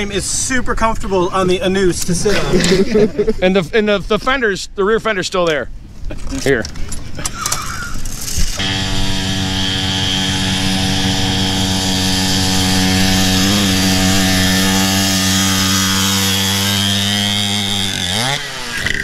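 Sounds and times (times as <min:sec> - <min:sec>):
small motorbike engine at high revs: 0:08.2 - 0:19.0.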